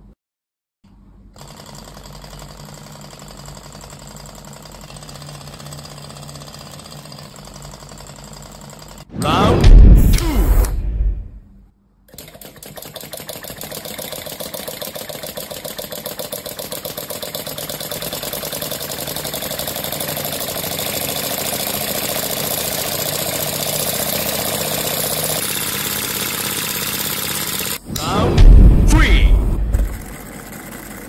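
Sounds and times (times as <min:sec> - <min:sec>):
model engine mechanical clatter: 0:01.4 - 0:09.1, 0:12.1 - 0:27.8, 0:29.8 - 0:31.0.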